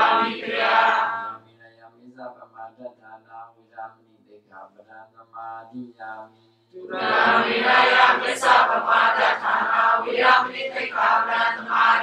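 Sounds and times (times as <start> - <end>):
group chanting in unison: 0.0 - 1.4, 6.8 - 12.0.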